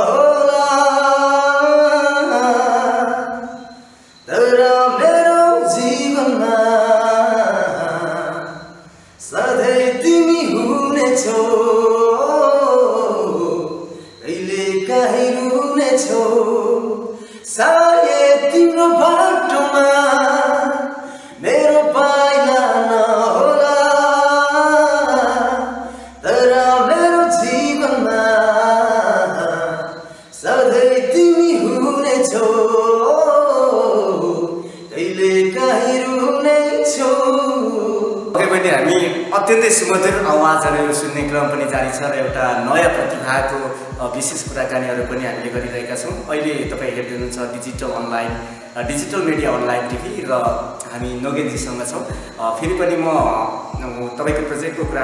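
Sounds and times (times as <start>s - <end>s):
man singing unaccompanied: 0.0s - 55.0s.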